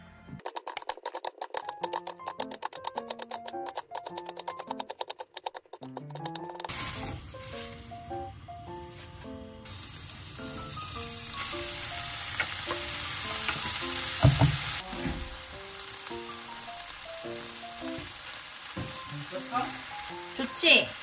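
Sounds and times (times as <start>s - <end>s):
light background music: 1.6s - 4.9s, 5.8s - 21.0s
fried rice sizzling in a pan: 6.7s - 8.3s, 8.9s - 21.0s.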